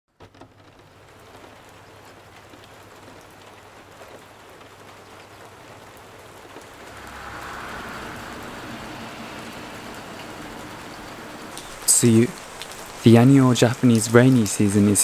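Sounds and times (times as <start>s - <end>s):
rain falling on street: 0.1s - 15.0s
car on wet road: 3.8s - 14.5s.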